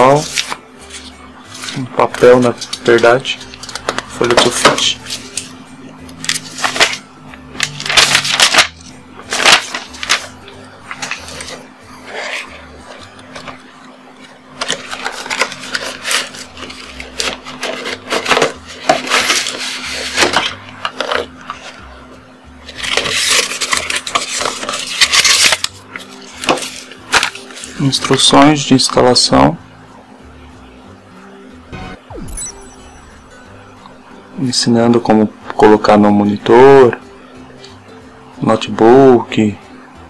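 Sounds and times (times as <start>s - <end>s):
paper and cardboard rustling: 0.0s - 5.5s, 7.6s - 10.3s, 10.9s - 21.8s, 22.7s - 27.8s.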